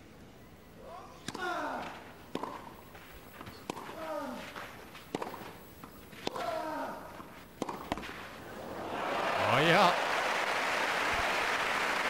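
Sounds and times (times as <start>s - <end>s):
racquet striking tennis ball: 1.2s - 6.6s, 7.2s - 8.3s.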